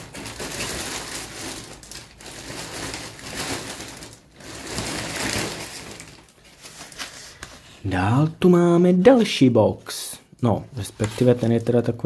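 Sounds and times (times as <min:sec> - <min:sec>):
packaging rustling and crinkling: 0:00.0 - 0:07.9, 0:10.8 - 0:12.0.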